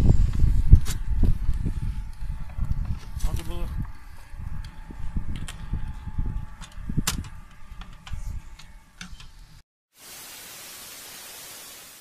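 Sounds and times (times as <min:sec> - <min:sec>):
steady hiss: 0:10.0 - 0:12.0.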